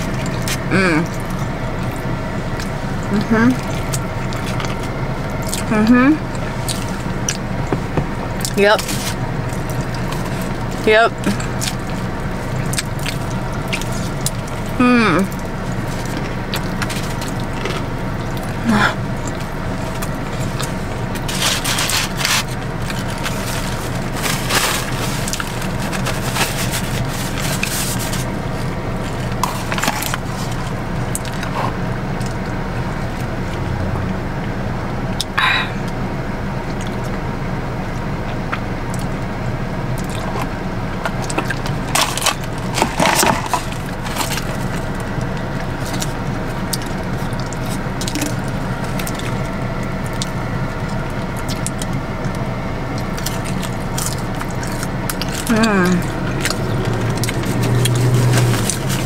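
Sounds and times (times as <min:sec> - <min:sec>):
low hum: 0:00.0 - 0:59.0
crunchy chewing: 0:08.4 - 0:33.3, 0:40.0 - 0:59.0
wet mouth sounds: 0:47.2 - 0:49.3.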